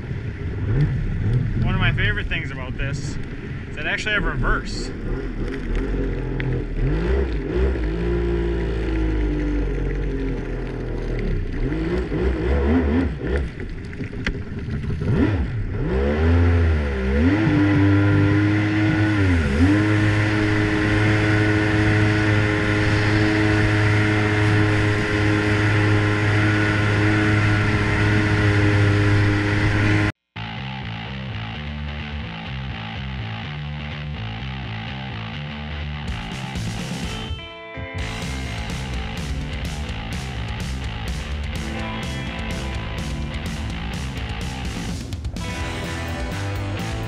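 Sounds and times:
water rushing under hull: 0.0 - 30.1
jet ski engine revving: 0.0 - 30.2, 38.0 - 47.0.

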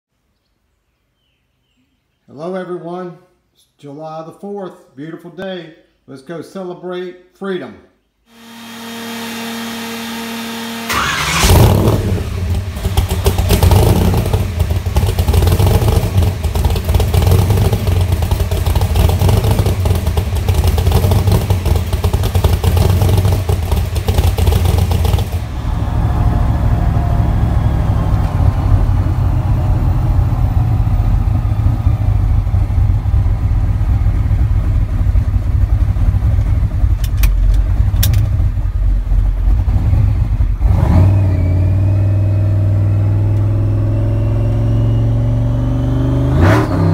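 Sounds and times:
engine firing and running loud: 8.3 - 46.9
starter motor whining: 8.4 - 15.2.

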